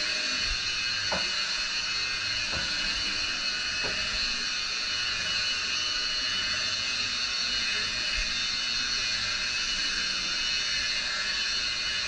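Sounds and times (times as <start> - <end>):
electric polisher whining: 0.0 - 12.0.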